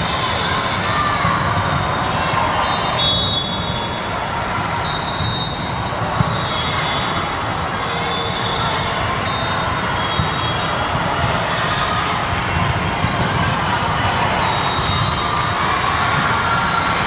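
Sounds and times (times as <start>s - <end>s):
crowd noise: 0.0s - 17.0s
sneakers squeaking on court: 6.1s - 11.0s.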